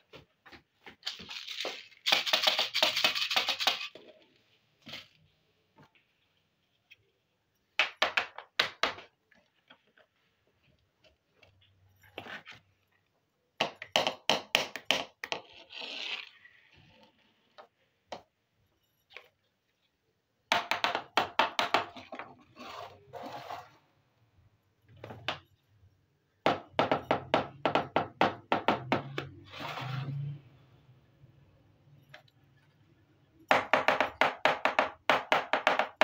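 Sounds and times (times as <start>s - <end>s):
plastic toy kitchenware clicking: 1.4s - 4.0s.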